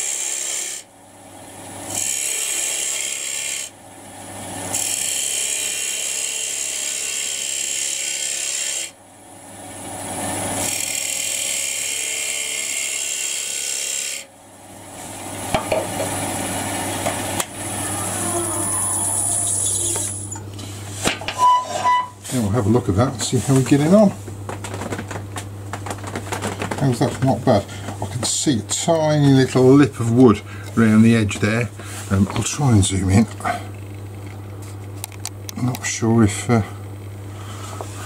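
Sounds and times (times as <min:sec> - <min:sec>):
lathe humming: 0:04.4 - 0:06.2, 0:09.7 - 0:34.4
chisel scraping spinning wood: 0:04.7 - 0:06.2, 0:10.0 - 0:14.2, 0:15.4 - 0:33.6
tool clicks and knocks: 0:23.2 - 0:27.4.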